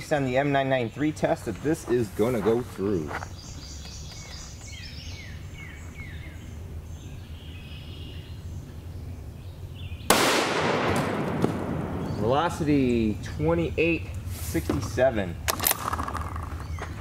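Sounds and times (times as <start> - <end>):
birds chirping: 0.0 - 17.0
rifle shot with echo: 10.1 - 12.3.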